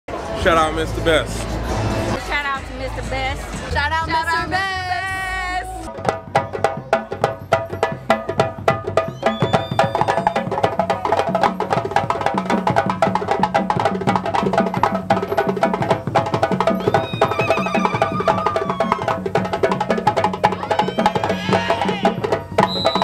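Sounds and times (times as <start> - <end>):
deep drum tone: 5.8 - 23.0
hand drums playing fast rhythm: 5.8 - 23.0.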